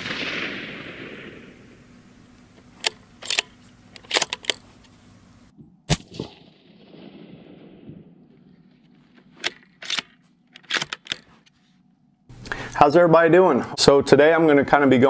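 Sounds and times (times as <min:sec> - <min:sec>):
rifle shot: 0:00.0 - 0:04.6, 0:05.9 - 0:10.1
rifle bolt metallic clicks: 0:02.3 - 0:05.0, 0:09.2 - 0:11.5.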